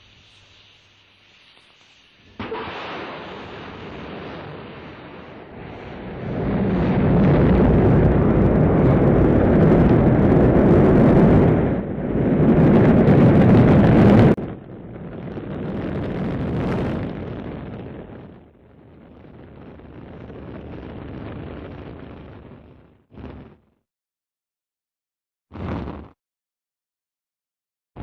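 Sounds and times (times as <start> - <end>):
rocket engines roaring: 2.4 - 16.4.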